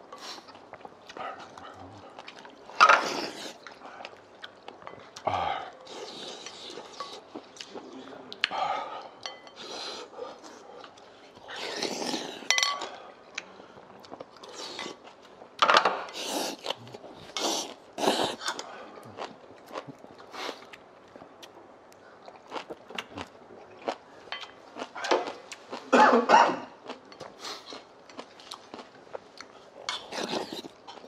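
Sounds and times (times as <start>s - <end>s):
utensils clinking on ceramic bowls: 9.2s - 9.6s, 12.5s - 13.0s.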